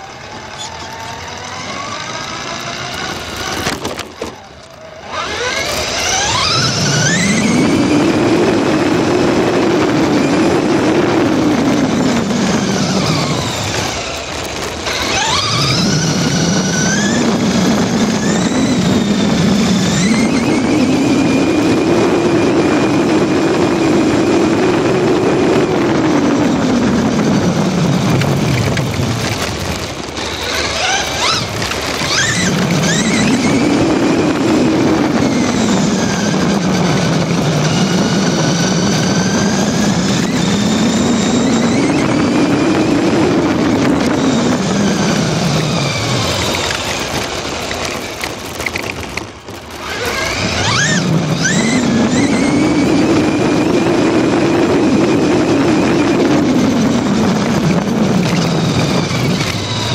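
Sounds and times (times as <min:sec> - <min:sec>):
rc truck motor whining: 0:00.0 - 0:59.9
steady rushing noise: 0:00.0 - 0:59.9.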